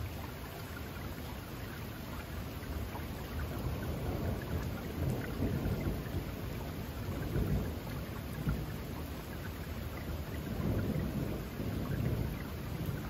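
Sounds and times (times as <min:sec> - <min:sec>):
steady rain: 0:00.0 - 0:13.0
rolling thunder: 0:03.8 - 0:08.9, 0:10.0 - 0:13.0.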